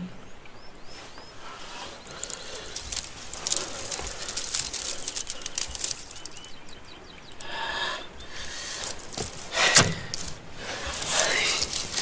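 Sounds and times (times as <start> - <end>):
paper sheets flapping and rustling: 1.6 - 6.6, 8.7 - 12.0.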